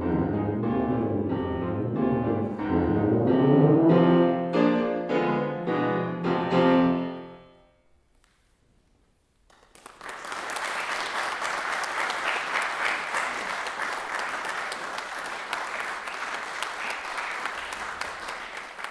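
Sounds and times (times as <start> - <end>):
tuba and piano chord: 0.0 - 7.6
audience applause: 9.5 - 18.9.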